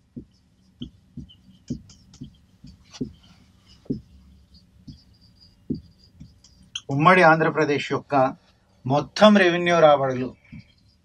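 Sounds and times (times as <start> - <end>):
marker pen tapping on whiteboard: 0.2 - 4.2, 5.7 - 6.8.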